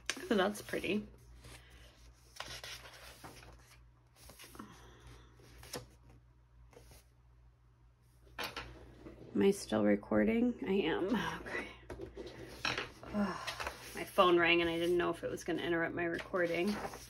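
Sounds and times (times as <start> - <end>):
catalog pages turning: 0.0 - 4.5, 16.1 - 17.0.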